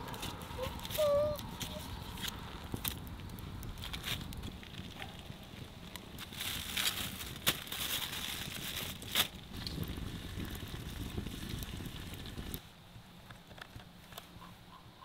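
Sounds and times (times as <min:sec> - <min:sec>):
campfire crackling: 0:00.0 - 0:12.6
sharp fire pops: 0:08.9 - 0:12.6.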